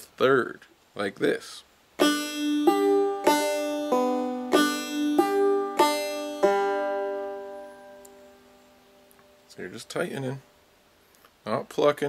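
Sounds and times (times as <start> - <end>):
banjo played clawhammer style: 2.0 - 8.4.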